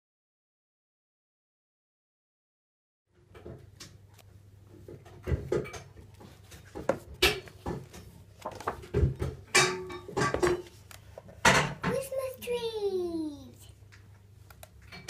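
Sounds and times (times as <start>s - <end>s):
book pages turning: 6.5s - 8.9s.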